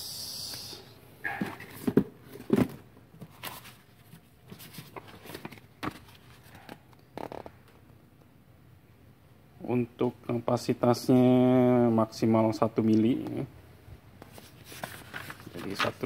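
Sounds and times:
paper rustling: 1.4 - 6.7, 14.2 - 16.0.

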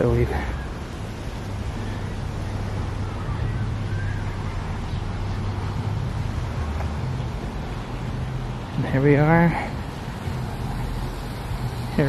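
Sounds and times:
constant low hum: 0.0 - 12.0
even hiss: 8.1 - 12.0.

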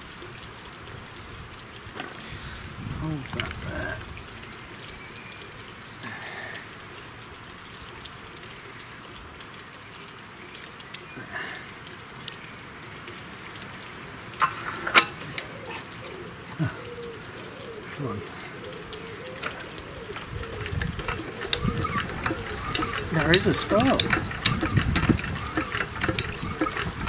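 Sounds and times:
sharp clicks: 19.4 - 27.0.

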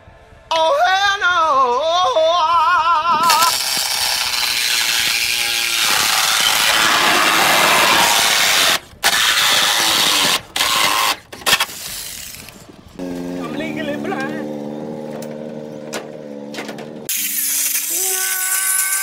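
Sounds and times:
reciprocating saw whining: 3.1 - 19.0
saw blade rasping through metal: 3.2 - 12.5.

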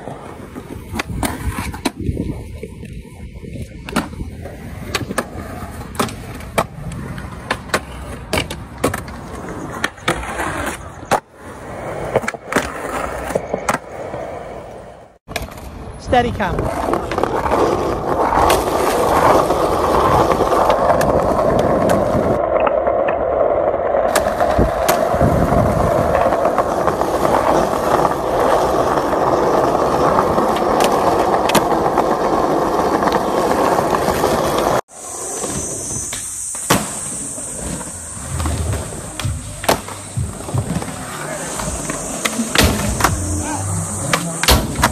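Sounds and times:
skateboard wheels rolling on stone: 0.0 - 44.9
steady high hiss: 34.9 - 44.9.

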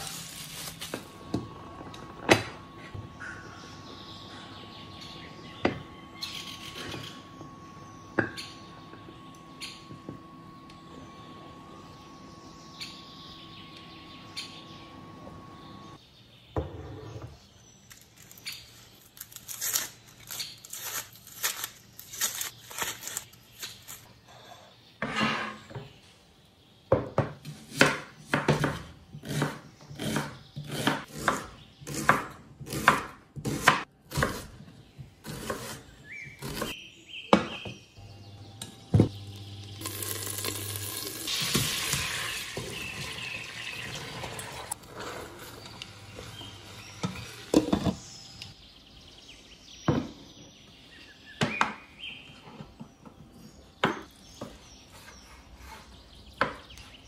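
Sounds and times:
knife chopping on wooden board: 27.2 - 34.6.

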